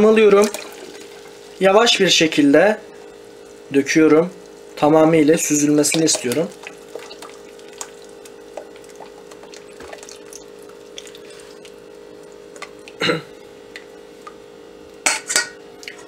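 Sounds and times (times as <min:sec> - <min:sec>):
steady hum: 0:00.0 - 0:16.0
liquid dripping through metal strainer: 0:05.4 - 0:13.0.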